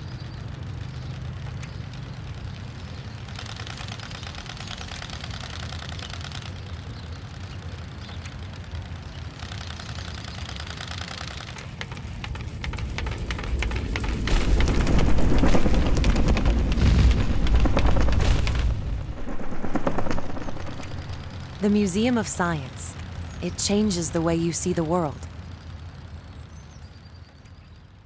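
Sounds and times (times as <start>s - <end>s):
low rumble: 12.4s - 23.7s.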